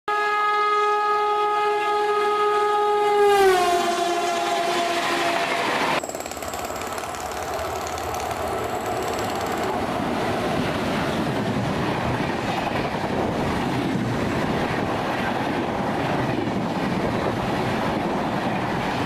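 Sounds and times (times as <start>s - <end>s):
locomotive horn blast: 0.1s - 6.0s
train rail rumble: 3.8s - 19.0s.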